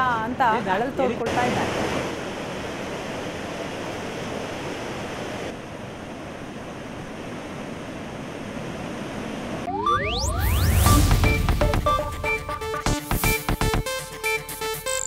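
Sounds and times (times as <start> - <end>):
floodwater rushing: 0.0 - 11.4.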